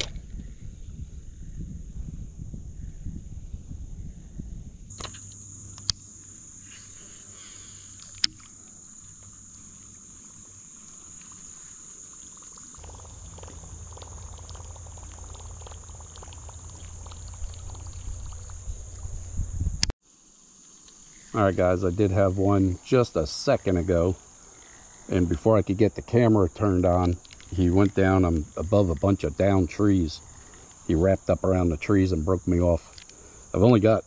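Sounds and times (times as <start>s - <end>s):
high-pitched insect drone: 4.9s - 34.0s
low rumbling noise: 12.7s - 19.9s.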